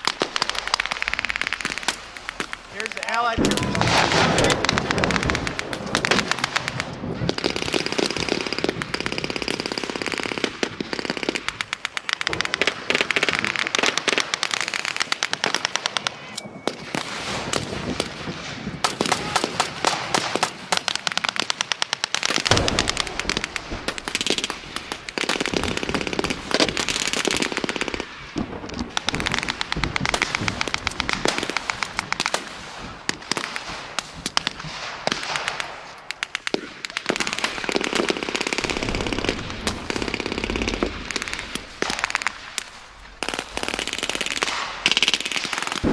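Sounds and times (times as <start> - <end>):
single rifle shots: 0.1 - 8.7, 22.4 - 27.0.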